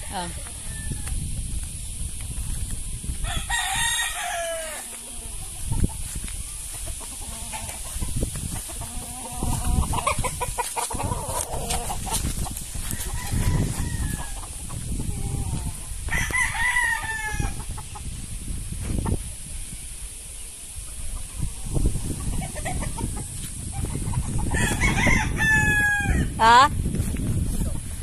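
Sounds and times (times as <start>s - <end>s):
rooster crowing: 0.0s - 1.2s, 3.2s - 5.3s, 12.8s - 14.4s, 15.4s - 17.6s, 24.5s - 26.3s
rooster clucking: 6.7s - 18.1s.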